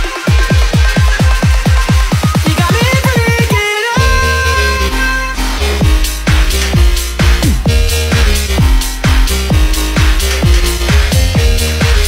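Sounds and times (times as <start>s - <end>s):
kick drum roll: 0.3s - 4.3s, 5.8s - 12.0s
heavy bass drop: 2.4s - 12.0s
rising synth line: 4.0s - 9.6s.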